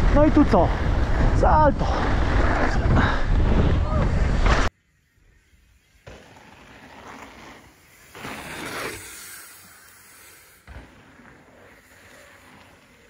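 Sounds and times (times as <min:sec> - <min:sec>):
mountain bike rolling: 0:00.0 - 0:13.0
wind on microphone: 0:00.6 - 0:04.6.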